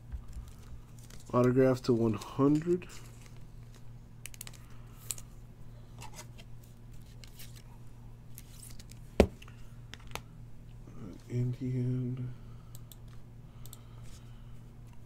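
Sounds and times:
cards clicking and rustling: 0:00.2 - 0:05.3, 0:08.3 - 0:10.2.

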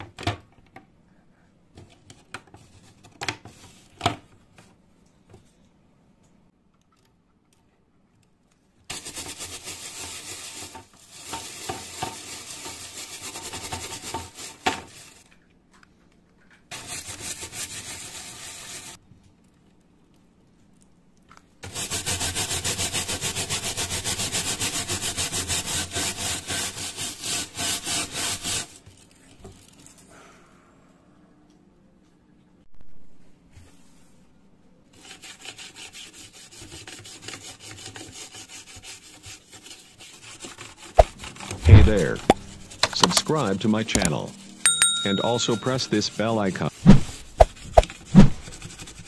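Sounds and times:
brush scrubbing wet plastic: 0:08.9 - 0:15.4, 0:16.7 - 0:19.0, 0:21.6 - 0:29.8, 0:34.9 - 0:44.4, 0:45.4 - 0:49.0.

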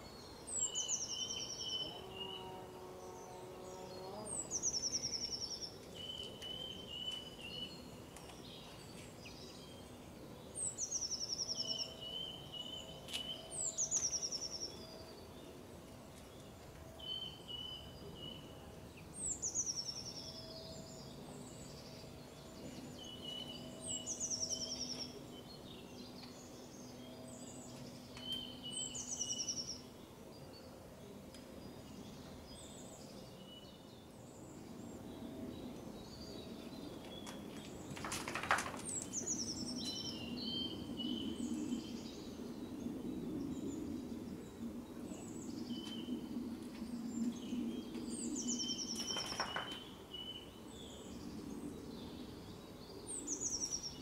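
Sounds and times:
bird chirping phrases: 0:00.0 - 0:15.3.

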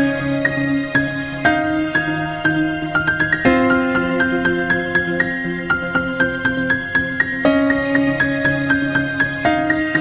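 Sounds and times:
calm instrumental music: 0:00.0 - 0:10.0.

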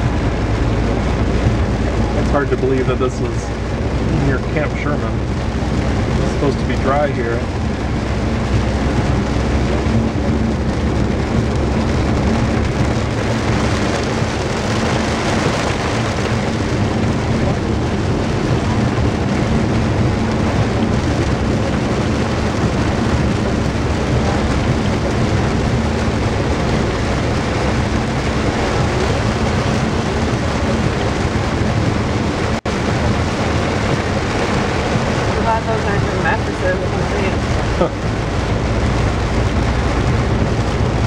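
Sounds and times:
car tyre and engine noise: 0:00.0 - 0:41.0
heavy rain on car roof: 0:00.0 - 0:41.0.

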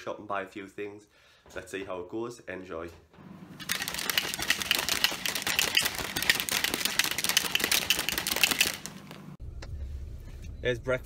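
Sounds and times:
shaker bottle rattling: 0:03.6 - 0:09.2.

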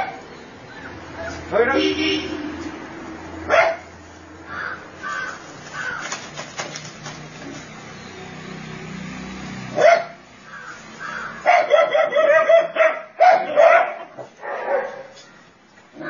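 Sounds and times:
dog barking: 0:00.0 - 0:00.2, 0:03.5 - 0:03.9, 0:09.7 - 0:10.2, 0:11.4 - 0:15.2.

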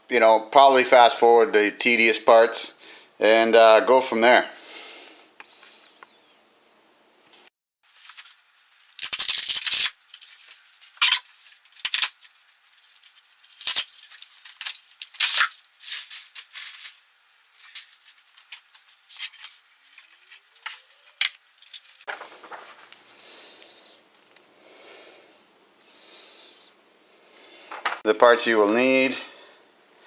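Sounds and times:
cardboard and paper rustling: 0:07.9 - 0:23.1.

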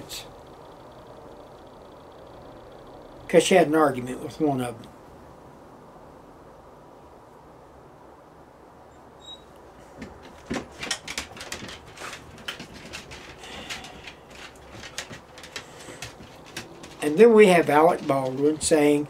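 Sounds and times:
faint room hum: 0:00.0 - 0:19.0
clicks creaks and rustles: 0:09.4 - 0:19.0.

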